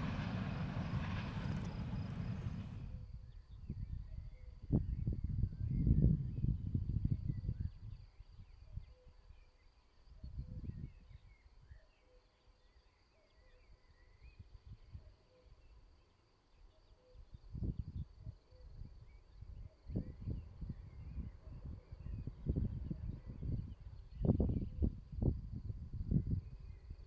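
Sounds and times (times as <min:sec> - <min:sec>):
wind gusting on microphone: 0:00.0 - 0:03.0, 0:19.9 - 0:27.0.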